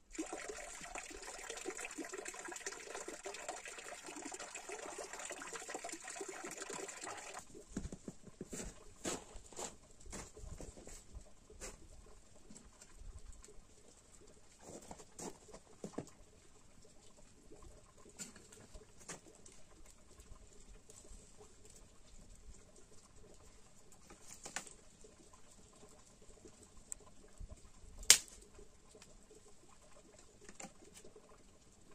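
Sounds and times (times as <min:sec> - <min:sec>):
water pouring from a fountain: 0:00.0 - 0:07.8, 0:08.5 - 0:31.9
wood fire crackling: 0:24.4 - 0:30.4
twigs snapping: 0:28.1 - 0:28.3.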